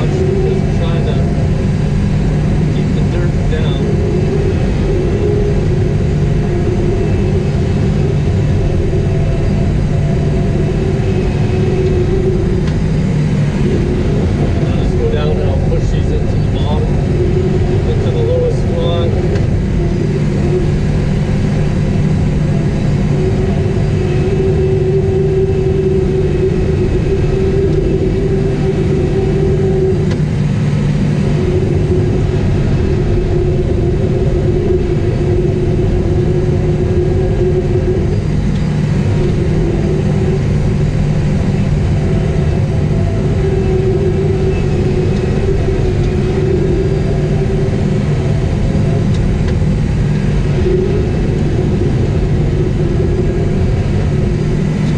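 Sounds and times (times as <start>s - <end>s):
diesel engine running under load: 0.0s - 54.9s
high tone above engine drone: 0.0s - 54.9s.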